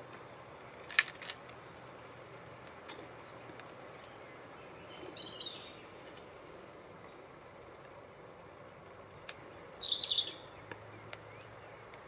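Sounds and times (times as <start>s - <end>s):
low outdoor background: 0.0s - 12.0s
small wood fed into fire: 0.1s - 4.1s
bird chirping: 3.2s - 8.3s, 8.9s - 12.0s.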